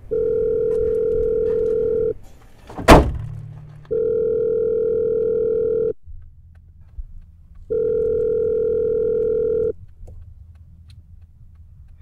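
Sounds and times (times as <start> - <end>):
phone ringback tone: 0.1 - 2.2, 3.9 - 6.0, 7.7 - 9.8.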